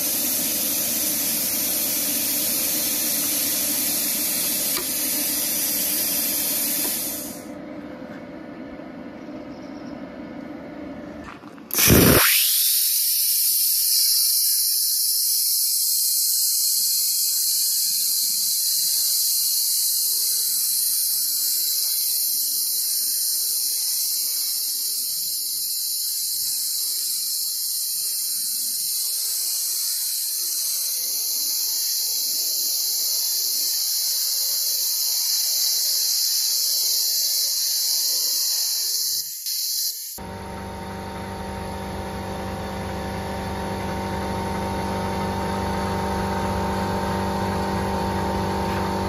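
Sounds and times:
plasma cutter hissing: 0.0s - 7.5s, 11.7s - 41.4s.

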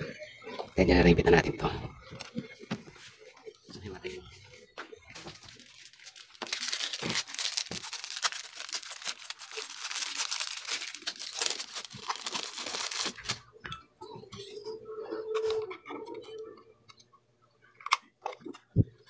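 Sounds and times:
plastic bag crinkling: 5.0s - 13.5s.

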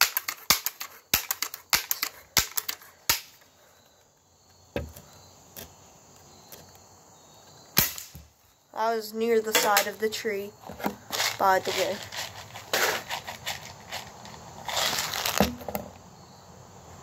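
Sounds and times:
bb gun sharp clicks: 0.0s - 3.4s, 7.8s - 8.3s
dull thump: 4.7s - 5.1s, 15.3s - 15.9s.

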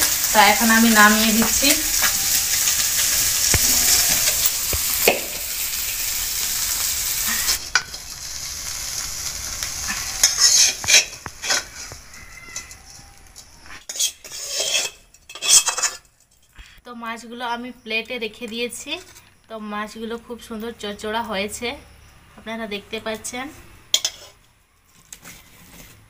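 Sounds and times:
fish sizzling in oil: 0.0s - 14.9s
metal spatula scraping a pan: 8.9s - 16.5s, 23.9s - 26.0s.

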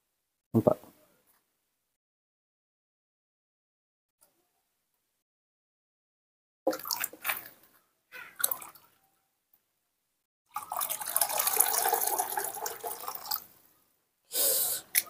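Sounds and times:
water pouring from kettle: 10.5s - 13.4s.

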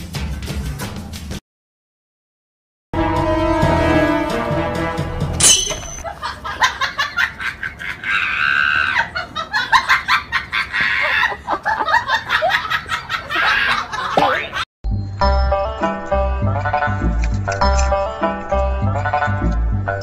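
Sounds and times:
person laughing: 6.0s - 14.6s.

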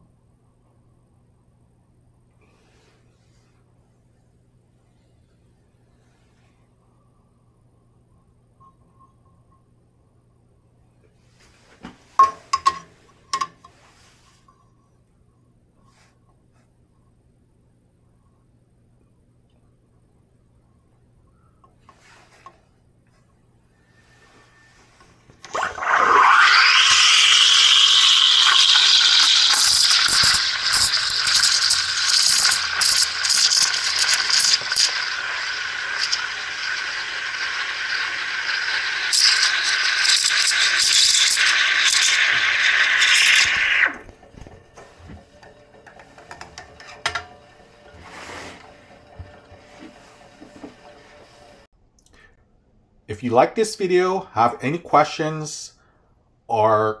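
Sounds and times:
liquid crackling as it froths: 25.4s - 51.7s
steam wand hissing into liquid: 25.4s - 51.7s.

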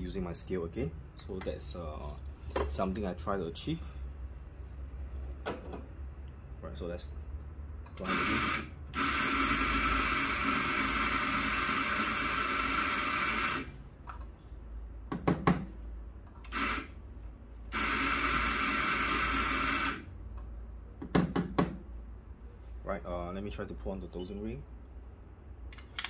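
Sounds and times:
coffee grinder grinding beans: 8.0s - 13.7s, 16.5s - 16.9s, 17.8s - 20.0s.

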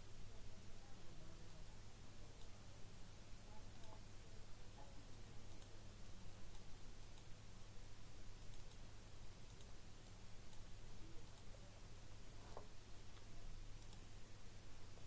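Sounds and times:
low hum and hiss: 0.0s - 15.0s
computer mouse clicks: 3.7s - 4.0s, 5.5s - 7.3s, 8.4s - 8.8s, 9.4s - 11.6s, 12.4s - 14.1s.

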